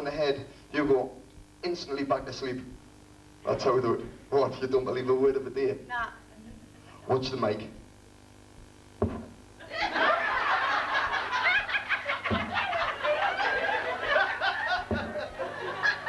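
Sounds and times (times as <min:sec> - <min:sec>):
microphone thumps on heads: 0:08.5 - 0:09.5, 0:12.1 - 0:13.0, 0:14.6 - 0:15.5
audience laughing: 0:09.6 - 0:16.0.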